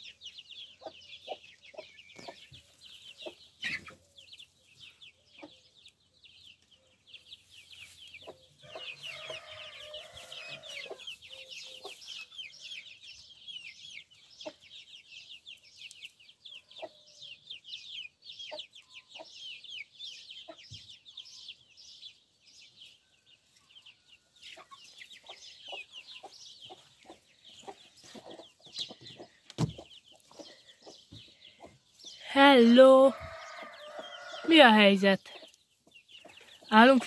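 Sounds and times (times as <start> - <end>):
chicks peeping: 0.0 - 37.0
hen clucking: 24.5 - 31.9.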